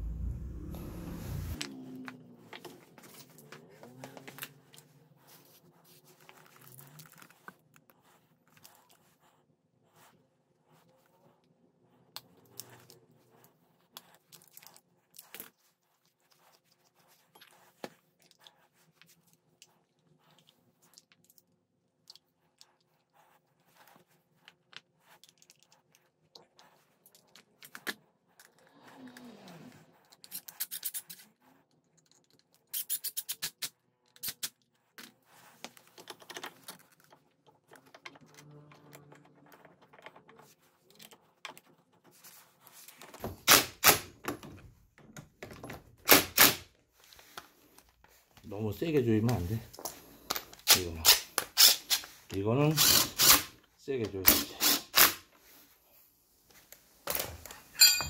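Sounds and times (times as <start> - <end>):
metal parts clinking: 57.7 - 58.0.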